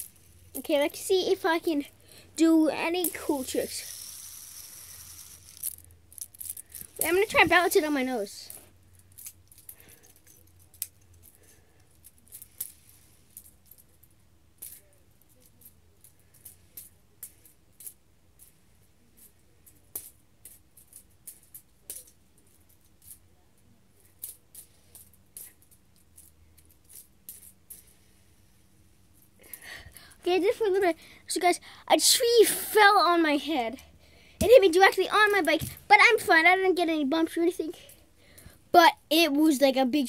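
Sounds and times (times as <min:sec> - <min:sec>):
fidget spinner clicking: 0:00.0 - 0:11.3.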